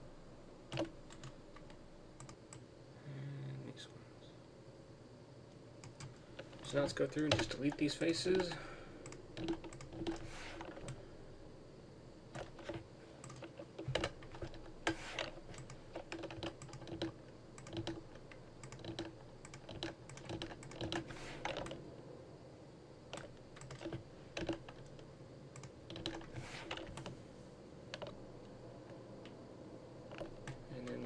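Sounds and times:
faint steady hum: 0.0s - 31.0s
mouse and keyboard clicking: 0.7s - 2.6s, 12.4s - 21.8s, 25.6s - 27.2s, 27.9s - 28.2s.

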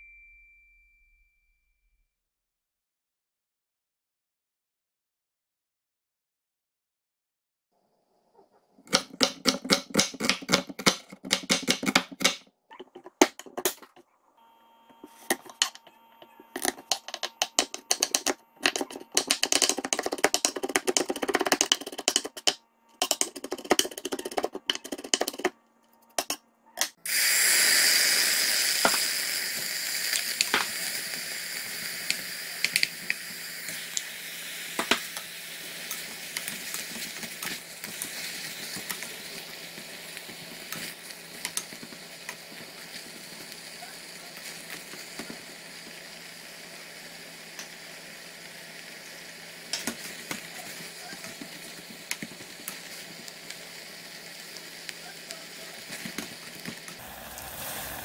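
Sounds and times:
knife chopping on wooden board: 8.9s - 12.4s
food sizzling in hot pot: 15.0s - 25.5s, 26.2s - 58.0s.

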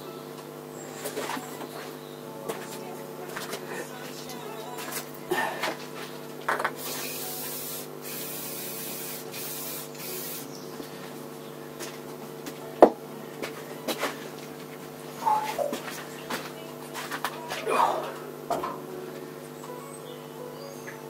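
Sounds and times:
aerosol spray can hissing: 6.8s - 10.6s.

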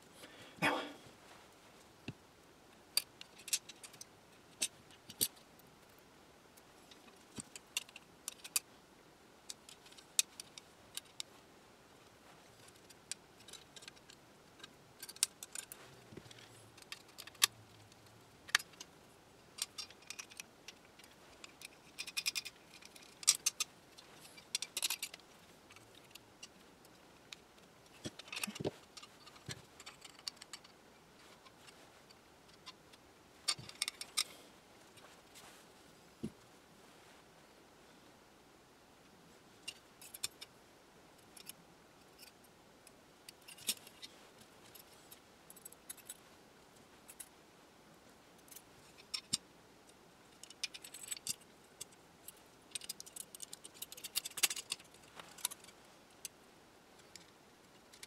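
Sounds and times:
metal hardware clicking and clinking: 19.6s - 27.0s, 50.4s - 56.4s.

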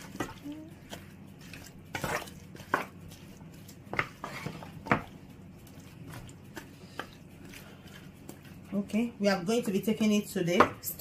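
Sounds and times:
spatula stirring food in pot: 0.0s - 11.0s
spatula knocking pot: 3.8s - 5.2s, 9.5s - 11.0s.

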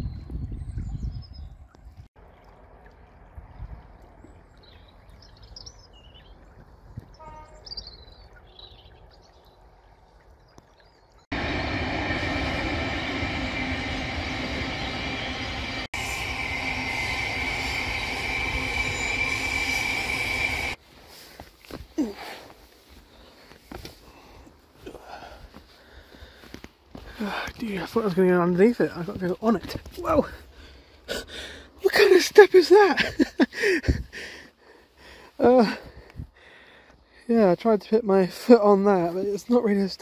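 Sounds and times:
train rumbling past: 11.3s - 20.8s
train wheel squeal: 11.4s - 20.8s.

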